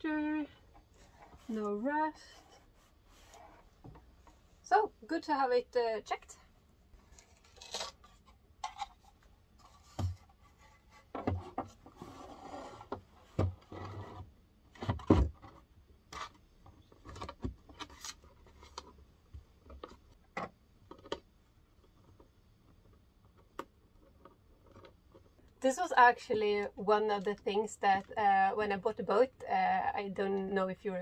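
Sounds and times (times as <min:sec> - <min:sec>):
wood rubbing and scraping: 0:07.0 - 0:14.2.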